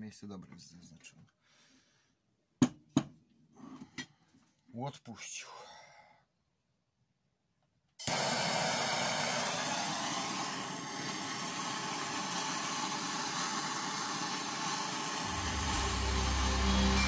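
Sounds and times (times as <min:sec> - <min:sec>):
power tool rushing hiss: 0:08.0 - 0:17.0
music: 0:15.3 - 0:17.0.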